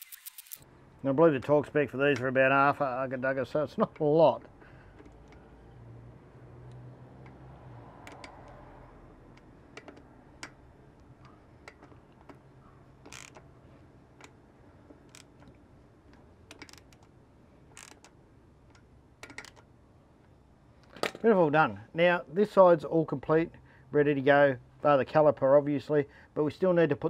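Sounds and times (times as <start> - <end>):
hand ratchet clicking: 8.0 - 8.6, 13.0 - 13.5, 14.2 - 17.1, 17.7 - 19.6.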